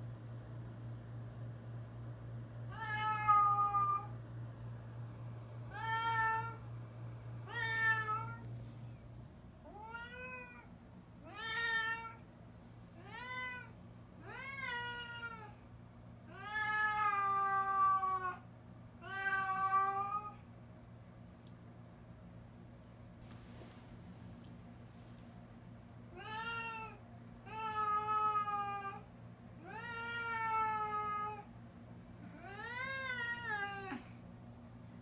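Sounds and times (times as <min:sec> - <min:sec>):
cat meowing: 0:09.7 - 0:12.2, 0:16.3 - 0:18.4.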